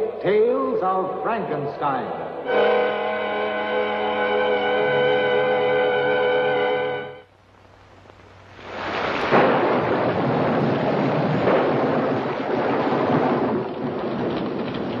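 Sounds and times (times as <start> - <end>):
heavy rain: 7.6 - 15.0
thunder: 8.7 - 15.0.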